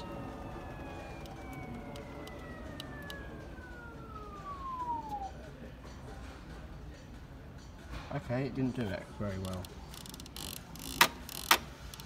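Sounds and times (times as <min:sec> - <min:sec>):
washing machine motor whining: 0:00.0 - 0:05.3
low hum: 0:00.0 - 0:06.2.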